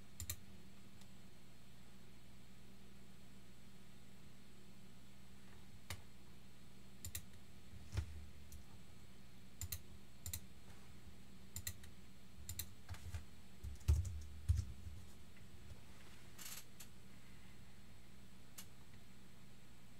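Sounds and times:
faint steady hum: 0.0s - 19.9s
computer keyboard keystrokes: 9.6s - 10.4s, 13.6s - 14.7s.

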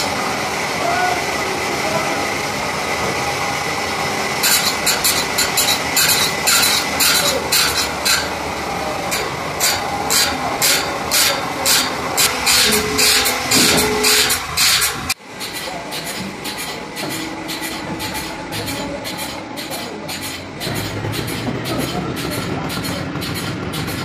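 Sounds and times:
grinding wheel motor running: 0.0s - 24.0s
grinding wheel rasping saw teeth: 0.0s - 24.0s.

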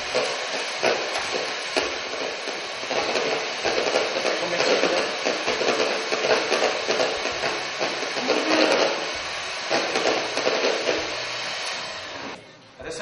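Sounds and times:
electric mixer whipping cream: 0.0s - 12.5s.

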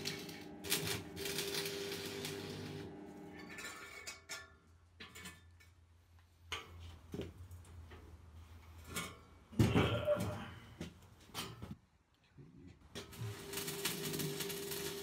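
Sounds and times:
welding rod crackling: 0.0s - 3.0s, 13.0s - 15.0s.

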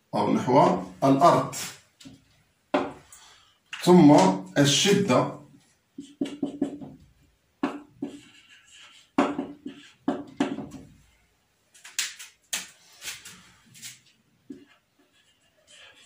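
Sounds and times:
marker squeaking on whiteboard: 6.0s - 7.0s, 7.6s - 10.8s, 12.0s - 16.0s.

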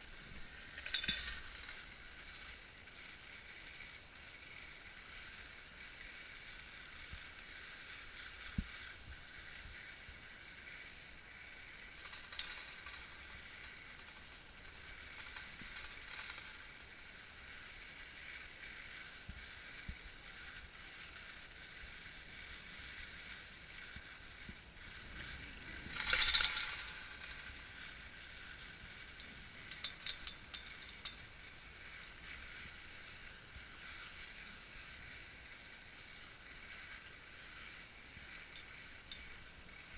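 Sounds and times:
skis sliding over snow: 0.0s - 39.9s.

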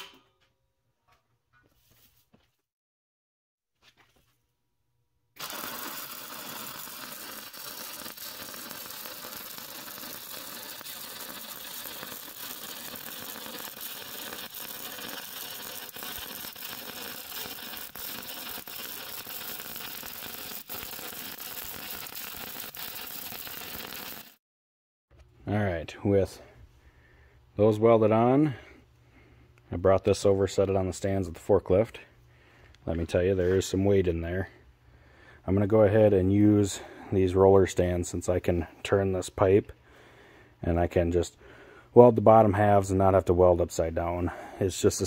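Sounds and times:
welding arc crackling: 5.4s - 24.4s.

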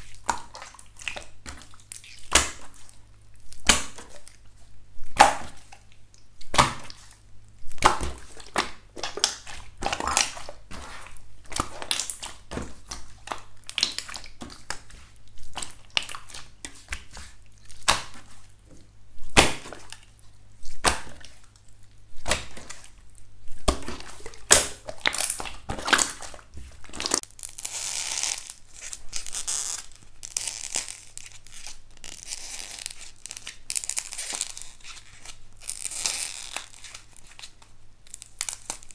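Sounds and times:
slime crinkling: 0.0s - 38.9s
slime popping and crackling: 7.7s - 18.3s, 19.2s - 38.9s.

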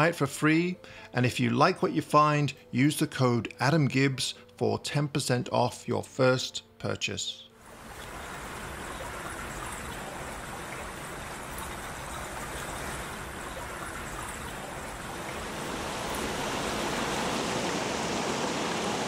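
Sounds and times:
creek water rushing over rocks: 7.7s - 19.0s.

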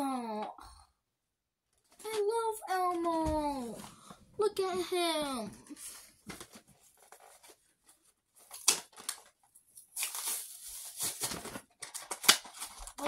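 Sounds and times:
packaging rustle: 5.8s - 13.0s
plastic package crinkling and tearing: 6.2s - 13.0s
sharp crack of packaging: 8.4s - 13.0s.

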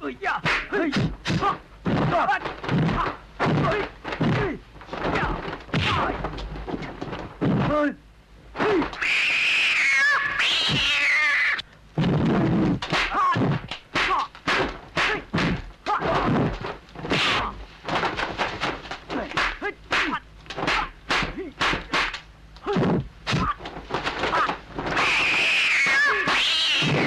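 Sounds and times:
fighters shouting and grunting: 0.0s - 6.3s, 8.6s - 9.0s, 13.0s - 16.5s
punch and kick impacts: 0.4s - 7.8s, 12.8s - 25.1s
high cat-like screech: 9.0s - 11.6s, 25.0s - 27.0s.

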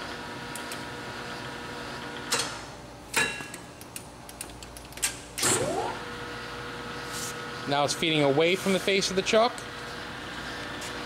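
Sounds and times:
lathe running hum: 0.0s - 2.3s, 5.5s - 11.0s.

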